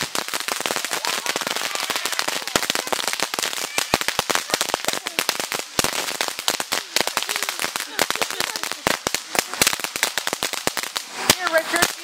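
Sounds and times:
firework crackling: 0.0s - 12.0s.

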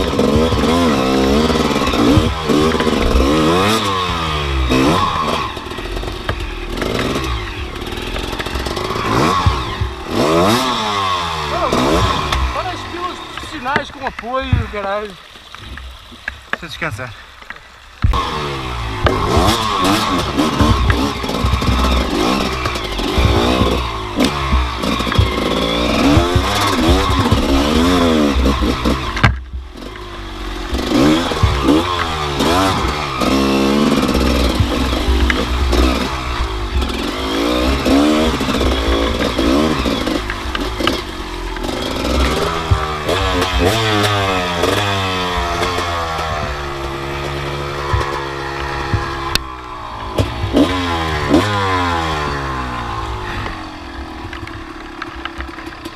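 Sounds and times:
knocks from bumps: 0.0s - 3.8s, 8.1s - 10.8s, 11.8s - 15.0s, 19.0s - 29.7s, 30.8s - 49.5s
dirt bike engine revving: 0.0s - 15.3s, 18.0s - 55.9s.

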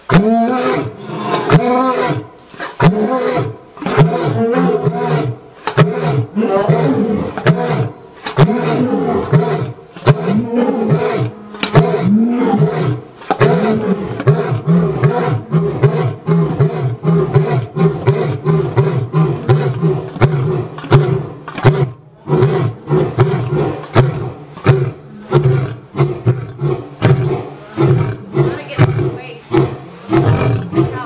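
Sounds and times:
lion roaring: 0.1s - 31.0s
lion grunting: 2.8s - 31.0s.

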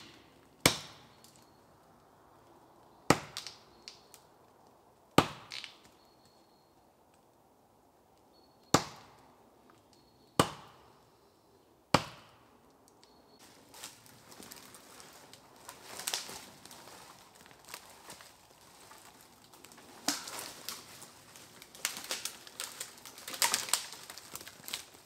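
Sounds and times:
axe chopping tree trunk: 0.0s - 1.2s, 3.1s - 3.6s, 5.2s - 5.8s, 8.7s - 9.2s, 10.4s - 10.8s, 11.9s - 12.4s.

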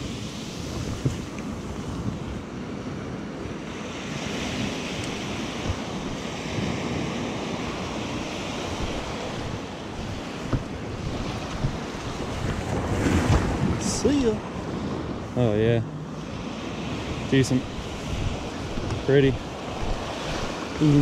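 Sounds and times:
surf breaking on sandy beach: 0.0s - 21.0s
wind buffeting microphone: 0.0s - 21.0s.

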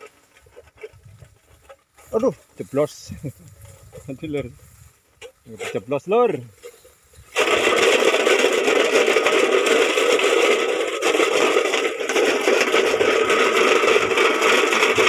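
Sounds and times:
metal tin rattling: 5.2s - 15.0s.

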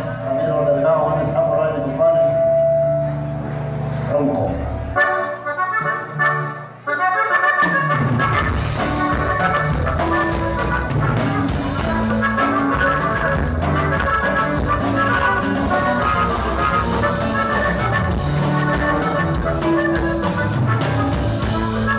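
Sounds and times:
bass: 0.0s - 21.9s
bajo sexto strumming: 2.5s - 21.9s
accordion: 4.8s - 21.9s
drums: 7.5s - 21.9s.

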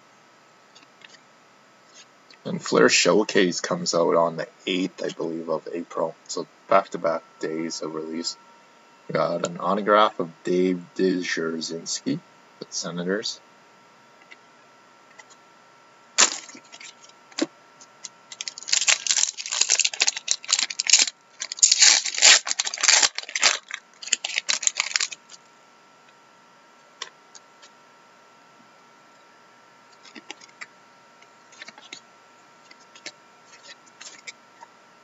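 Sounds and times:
foil wrapper tearing and crinkling: 16.2s - 17.1s, 18.3s - 25.4s
cards rustling: 16.2s - 25.4s, 30.0s - 30.7s, 31.5s - 32.0s, 32.7s - 34.4s.

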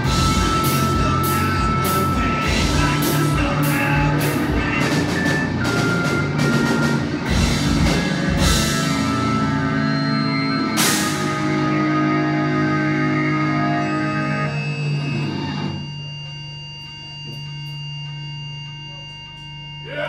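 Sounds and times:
drum kit with cymbal hits: 0.0s - 14.3s
electric guitar: 0.0s - 18.3s
bass guitar: 0.0s - 20.0s.

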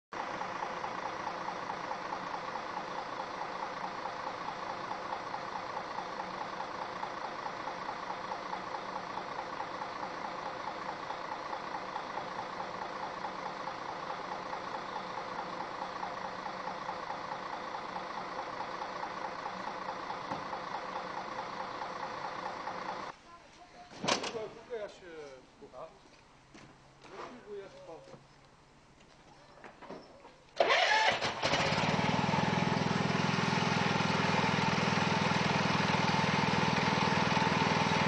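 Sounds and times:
vacuum truck running with fast pulse: 0.2s - 23.1s, 30.6s - 38.0s.

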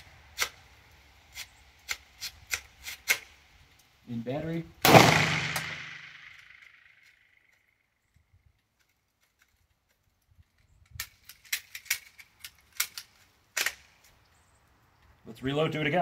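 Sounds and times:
pistol shot echo: 4.8s - 6.7s
metallic clicks of pistol action: 10.8s - 14.1s.

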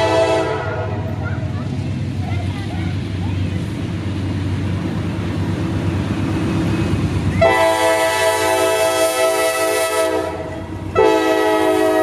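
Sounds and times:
train air horn blast: 0.0s - 1.1s, 7.4s - 12.0s
diesel locomotive engine rumbling: 0.0s - 12.0s.

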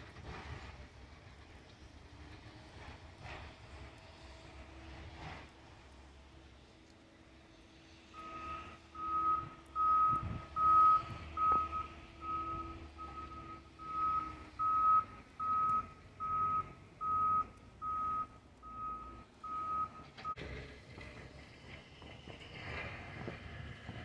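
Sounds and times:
engine drone: 0.0s - 24.0s
reversing alarm beeping: 8.1s - 20.4s.

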